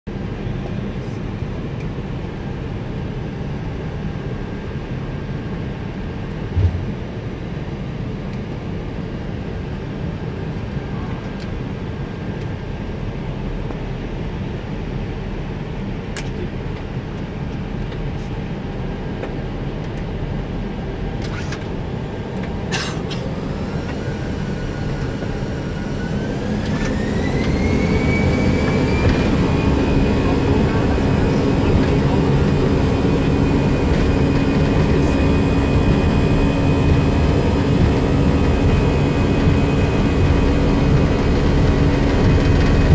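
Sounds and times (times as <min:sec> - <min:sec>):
engine and air-conditioning hum: 0:00.1 - 0:42.9
jet engines spooling up whine: 0:00.2 - 0:42.9
brief thump: 0:06.5 - 0:07.0.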